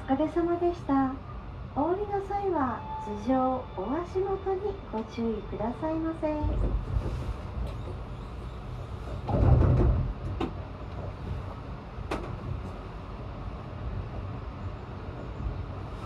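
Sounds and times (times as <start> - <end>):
gondola cabin rumbling on cable: 6.2 - 14.3.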